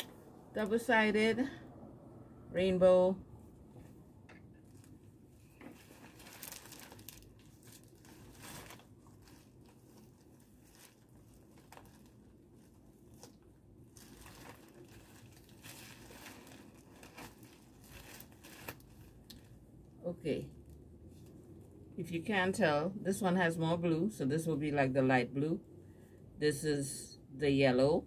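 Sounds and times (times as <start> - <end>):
plastic wrapping crinkling: 4.6 - 19.7.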